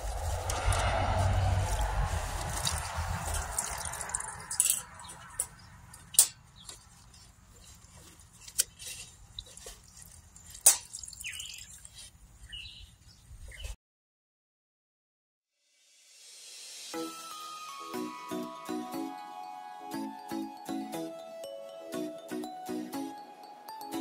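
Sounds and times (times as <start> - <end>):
passing traffic: 0.0 - 8.3
sponge squishing and dripping: 1.8 - 5.2, 6.6 - 12.2.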